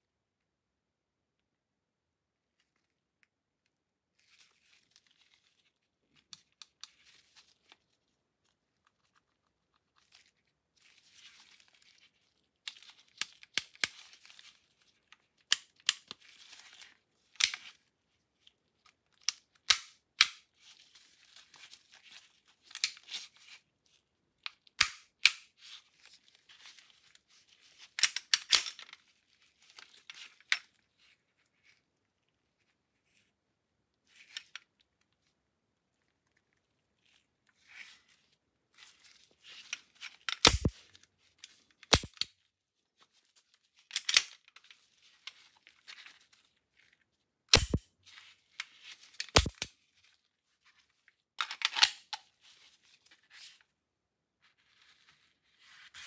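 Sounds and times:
pistol metal clicks and snaps: 19.2s - 20.4s, 24.8s - 25.5s, 40.3s - 40.7s, 41.8s - 42.3s, 47.5s - 47.8s, 49.2s - 49.7s, 51.4s - 52.2s.

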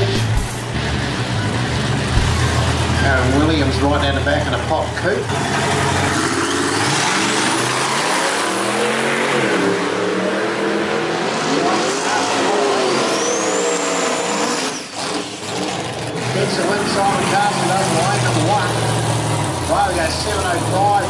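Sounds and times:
high whine: 0.0s - 4.3s
background engine noise: 0.0s - 21.0s
race car engines revving: 0.0s - 21.0s.

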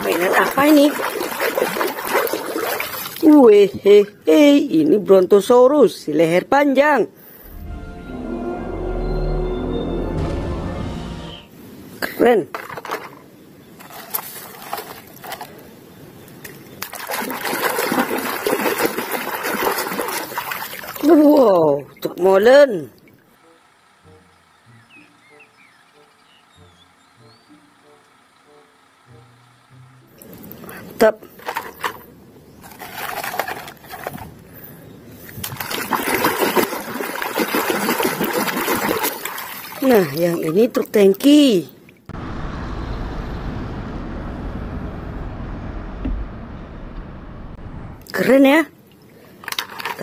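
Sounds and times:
water splashing and sloshing: 0.0s - 3.6s, 11.8s - 23.3s, 30.1s - 42.2s, 48.0s - 50.0s.

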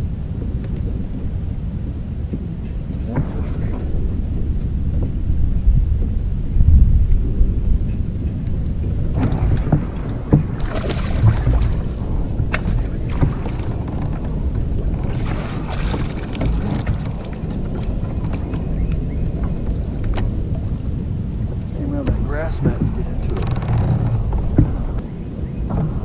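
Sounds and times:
water splashing: 0.0s - 26.0s
wind rumbling on microphone: 0.0s - 26.0s
sharp knocks: 8.9s - 18.6s, 21.8s - 25.0s.

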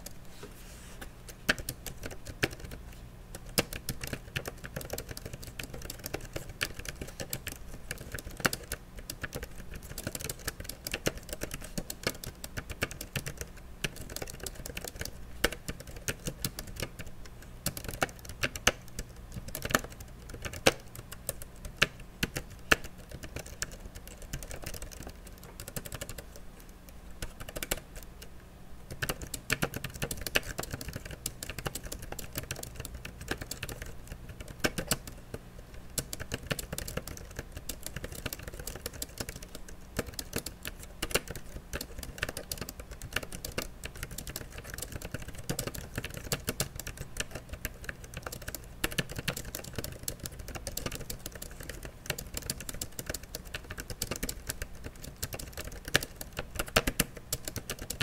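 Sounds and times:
keyboard typing clicks: 1.3s - 28.3s, 28.9s - 58.0s.

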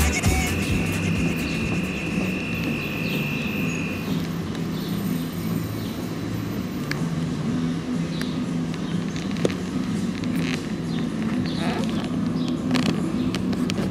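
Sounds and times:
high steady tone: 0.0s - 8.0s
street traffic: 0.0s - 13.9s
vehicle engine running: 0.0s - 13.9s.

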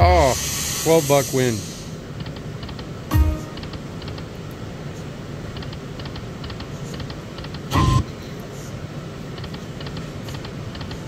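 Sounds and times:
slot machine thump and tone: 3.1s - 3.7s.

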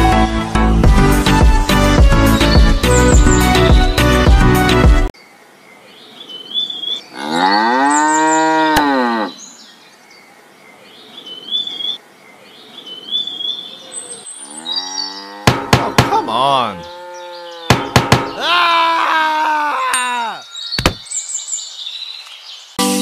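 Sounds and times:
cow mooing: 7.1s - 9.4s, 14.4s - 15.7s, 16.6s - 17.8s.

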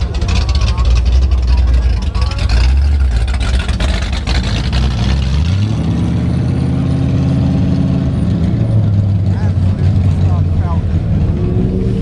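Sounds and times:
vehicle engine idling: 0.0s - 5.6s, 7.8s - 11.4s
car engine pulling away: 0.0s - 12.0s.

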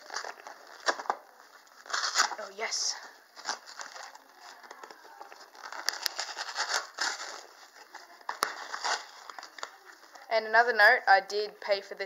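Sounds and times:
cardboard and packaging crinkling: 0.0s - 10.3s
cardboard box being torn open: 1.8s - 2.4s, 5.6s - 7.5s, 8.4s - 9.5s.

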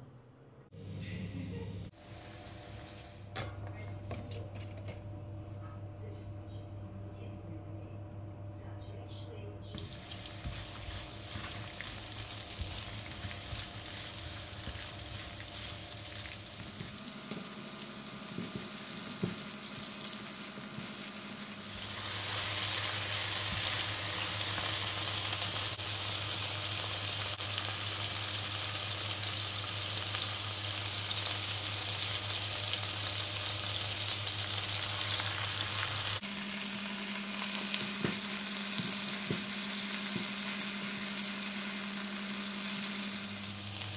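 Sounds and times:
onion sizzling in hot oil: 9.7s - 43.9s
spatula stirring in pan: 9.9s - 17.6s.

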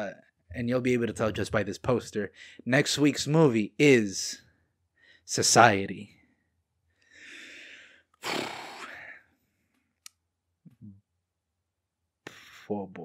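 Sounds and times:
man breathing and sighing: 6.9s - 9.9s.

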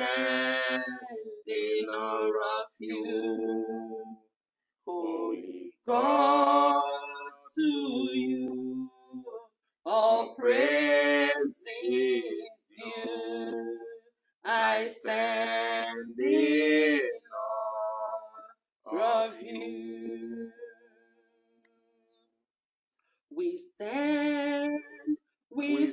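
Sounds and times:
voices singing unaccompanied: 0.0s - 21.0s, 23.3s - 25.9s.

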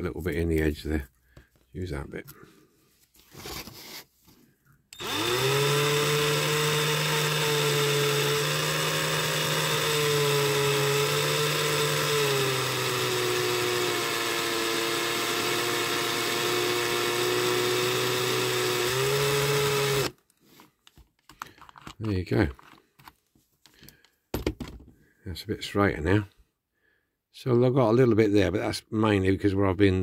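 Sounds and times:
cordless drill motor spinning: 4.9s - 20.2s.

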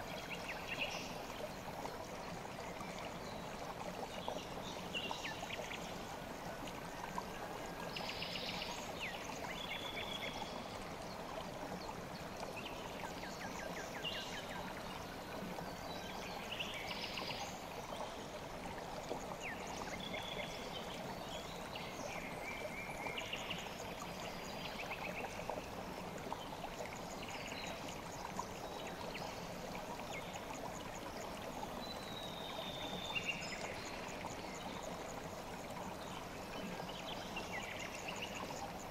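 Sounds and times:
river flowing: 0.0s - 38.9s.

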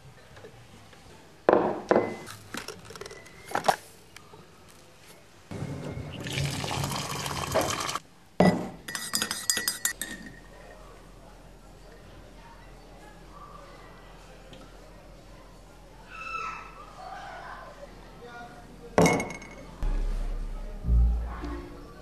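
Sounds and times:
tap water running into mug: 6.2s - 8.0s.

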